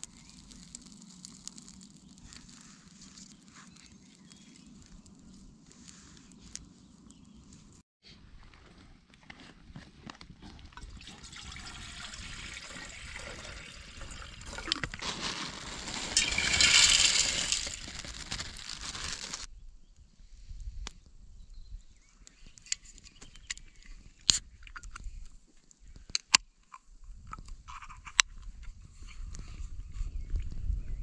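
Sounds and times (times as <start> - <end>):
water pouring into metal pot: 10.8 - 19.5
dry pasta tipped into pot: 14.5 - 19.4.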